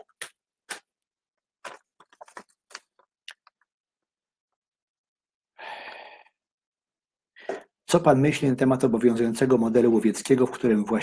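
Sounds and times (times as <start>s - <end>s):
person breathing: 5.6s - 6.4s.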